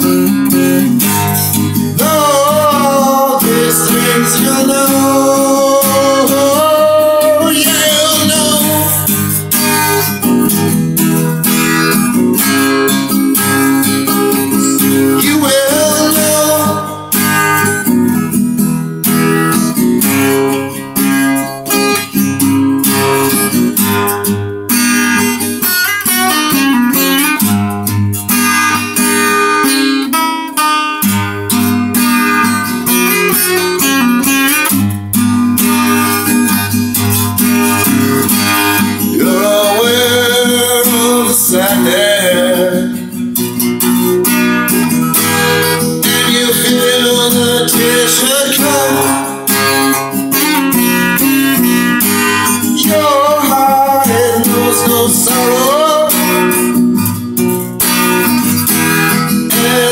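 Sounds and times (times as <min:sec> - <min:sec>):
man singing: 0:00.0 - 0:10.1, 0:14.0 - 0:17.7, 0:37.6 - 0:43.4, 0:44.8 - 0:56.8, 0:58.7 - 0:59.9
acoustic guitar strumming: 0:00.0 - 0:59.9.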